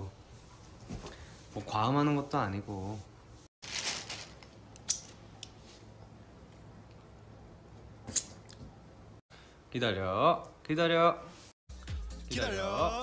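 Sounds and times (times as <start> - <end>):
handling rustle: 3.6 - 4.6.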